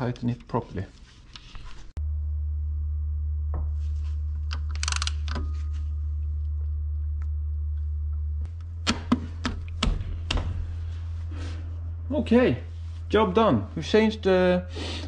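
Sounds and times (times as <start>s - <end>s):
steady low hum: 0.0s - 15.0s
metal clicks: 4.5s - 5.5s.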